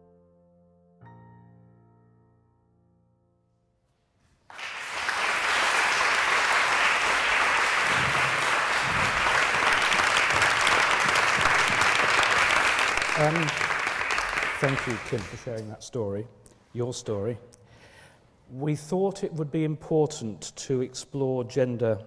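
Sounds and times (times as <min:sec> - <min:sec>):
piano chord: 0:00.0 - 0:03.6
audience applauding: 0:04.5 - 0:15.6.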